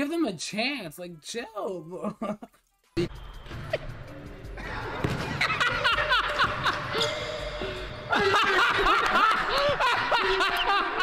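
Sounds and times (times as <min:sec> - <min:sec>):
people laughing: 0:04.6 - 0:11.0
basketball bouncing: 0:05.0 - 0:06.6.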